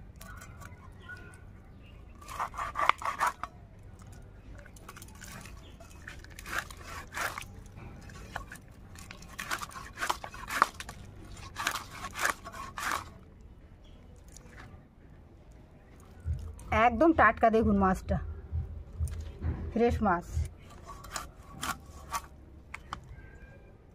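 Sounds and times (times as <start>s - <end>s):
blade cutting through fish: 2.2s - 3.5s, 4.9s - 13.2s, 20.7s - 22.3s.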